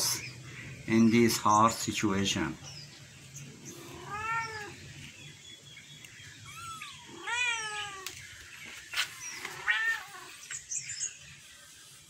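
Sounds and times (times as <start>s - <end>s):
kittens mewing: 3.6s - 4.8s, 6.4s - 8.2s, 9.2s - 10.4s.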